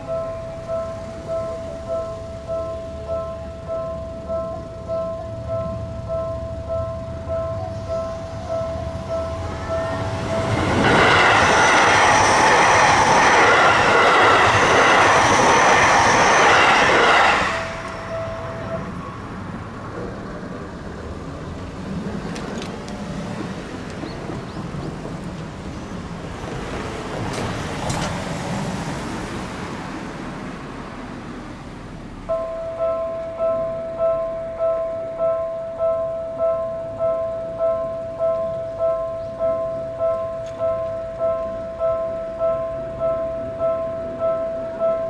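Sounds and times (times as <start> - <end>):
level crossing bell ringing: 0.0 - 19.4, 32.3 - 45.0
electric train passing: 0.0 - 45.0
traffic noise: 0.0 - 45.0.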